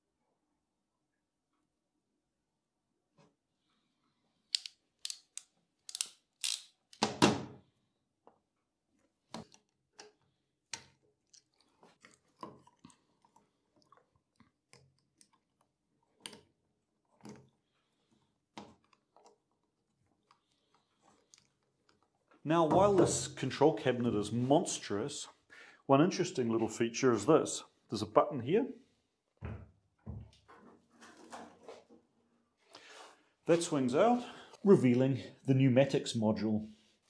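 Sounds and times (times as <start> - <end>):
screwdriver tightening screws: 4.5 - 7.0
wire handling clicks and scrapes: 4.5 - 7.0.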